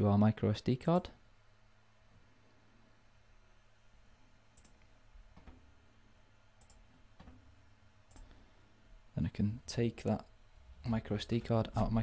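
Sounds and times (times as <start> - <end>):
computer mouse clicks: 4.5 - 5.6, 6.6 - 7.4, 8.1 - 8.4.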